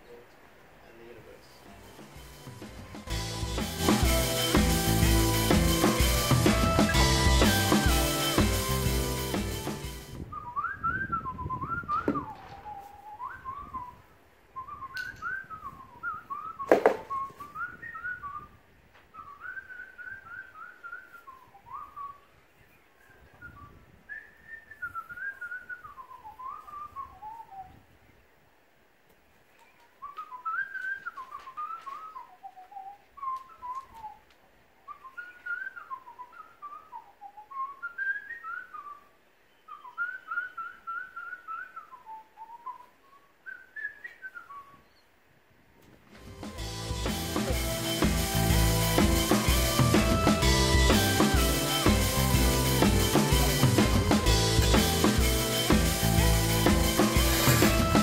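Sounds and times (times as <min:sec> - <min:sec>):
person whistling a tune: 0:03.1 - 0:14.0, 0:46.4 - 0:58.0
sharp knock: 0:16.7 - 0:17.1.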